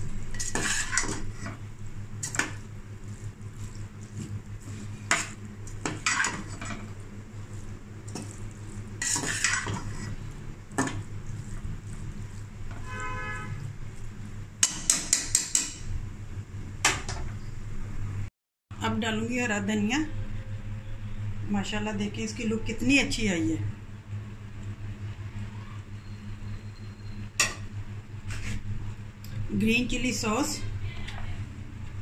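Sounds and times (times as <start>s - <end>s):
metal spoon scraping a pot: 0.3s - 1.6s, 5.0s - 6.8s, 9.0s - 11.0s.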